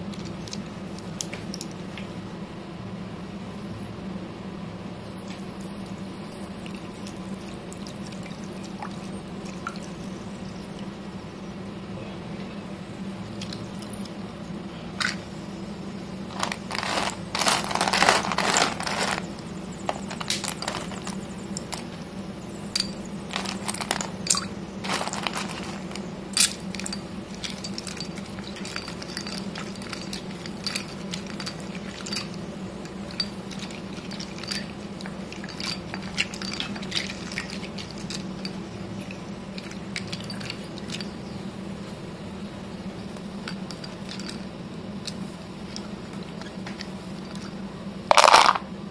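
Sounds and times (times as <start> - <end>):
low steady hum: 0.0 - 48.9
hand stirring pencils against stone: 16.3 - 22.0, 22.7 - 41.2
stone pencils clattering in water: 16.3 - 22.0, 22.7 - 41.1, 48.1 - 48.6.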